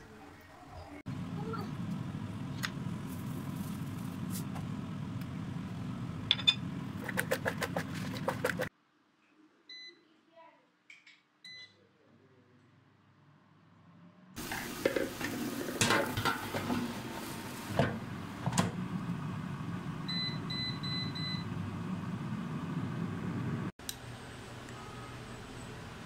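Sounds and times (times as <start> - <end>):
air fryer fan whooshing: 1.2 - 8.7, 14.4 - 24.7.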